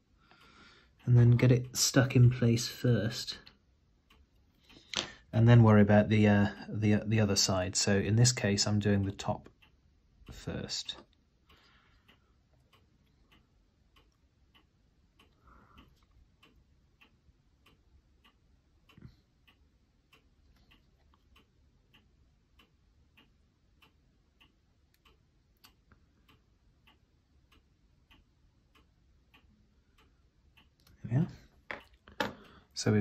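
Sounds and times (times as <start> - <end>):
faint even ticking: 7.4 - 33.0.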